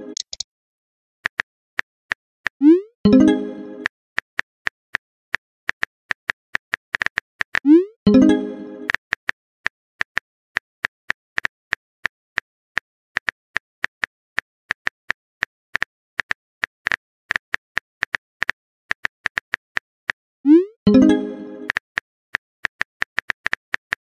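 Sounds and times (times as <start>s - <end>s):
keyboard typing clicks: 0.1s - 0.4s.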